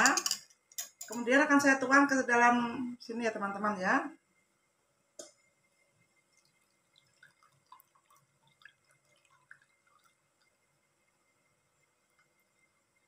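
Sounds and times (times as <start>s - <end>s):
liquid dripping into metal pot: 6.3s - 11.2s.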